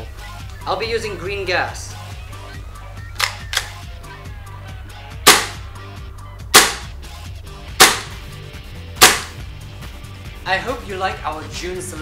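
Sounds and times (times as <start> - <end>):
airsoft rifle shots: 5.2 - 5.6, 6.5 - 6.9, 7.8 - 8.2, 9.0 - 9.4.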